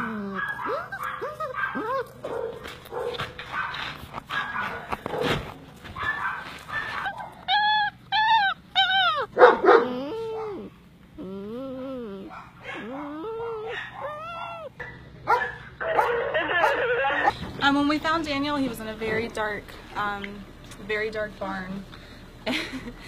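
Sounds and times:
dogs whimpering and yipping: 0.0 - 17.4
high dog yelps: 0.3 - 5.4, 6.0 - 10.7, 12.2 - 17.3.

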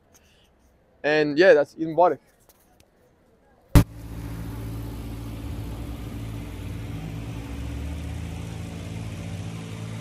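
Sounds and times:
car engine running: 3.8 - 10.0
cars passing: 3.8 - 10.0.

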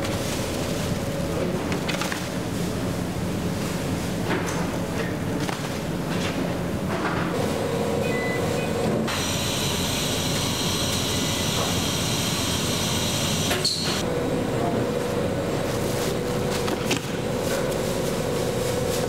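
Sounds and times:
machinery humming: 0.0 - 19.0
high whine: 7.4 - 15.6.

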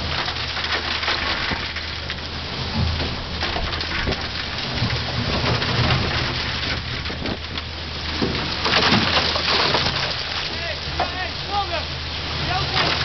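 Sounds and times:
concrete chips clattering: 3.4 - 11.8, 12.4 - 13.0.

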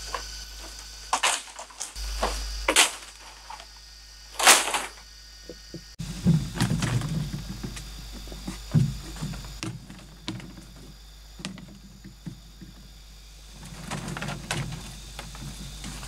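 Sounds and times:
bamboo scraping and handling: 0.0 - 5.0, 6.0 - 16.0
bamboo poles knocking: 5.5 - 12.9.

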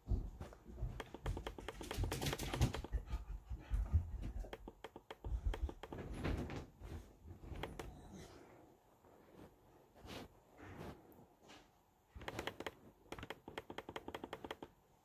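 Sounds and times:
laptop keyboard clicking: 1.0 - 2.9, 4.5 - 6.0, 7.5 - 7.9, 12.2 - 14.7.

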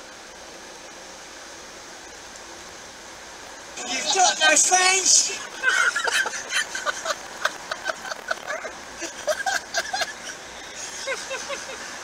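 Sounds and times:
road noise: 0.2 - 12.0
men laughing: 3.8 - 12.0.

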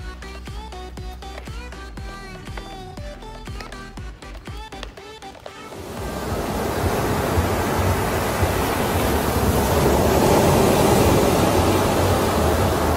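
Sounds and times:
waves breaking: 5.7 - 12.9.

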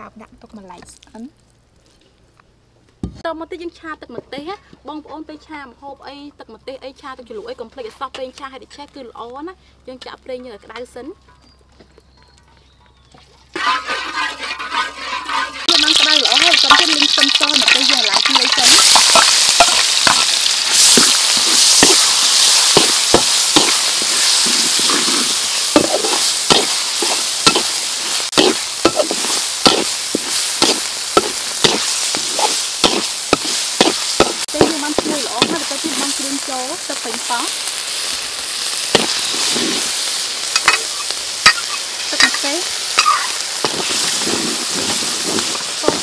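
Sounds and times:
metal ladle scraping wok: 13.5 - 36.5, 38.9 - 46.0
food sizzling in hot oil: 13.6 - 46.0.

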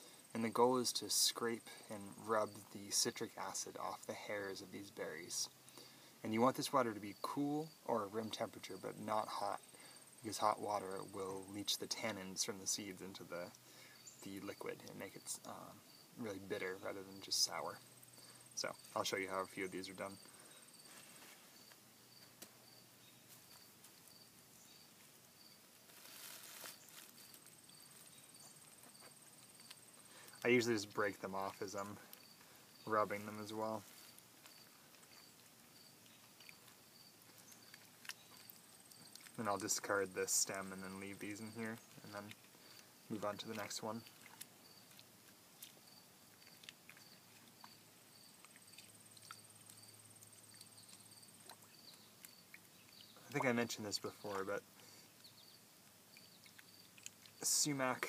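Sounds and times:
crickets chirping: 0.0 - 58.0
thin high insect trill: 6.4 - 54.7, 55.3 - 58.0
hands rubbing berries in water: 32.9 - 54.7.

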